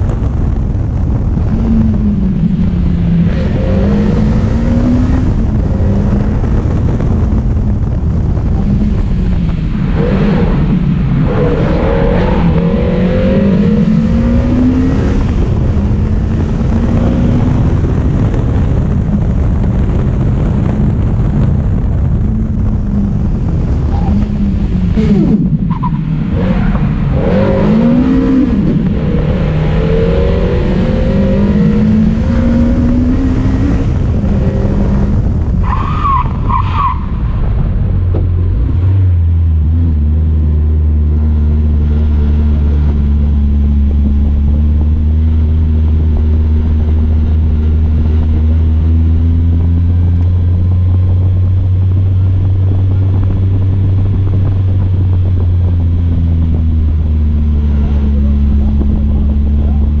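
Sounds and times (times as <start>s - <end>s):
car engine revving: 0.0s - 60.0s
tire squeal: 25.7s - 26.8s, 35.6s - 37.4s.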